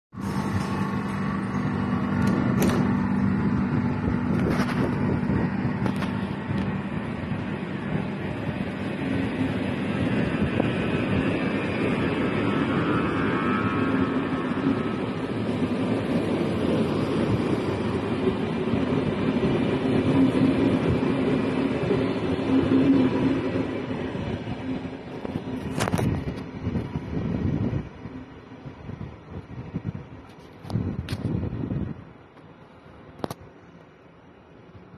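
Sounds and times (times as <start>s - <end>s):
sharp train clacks: 0.1s - 27.9s
train rolling rumble: 0.1s - 34.9s.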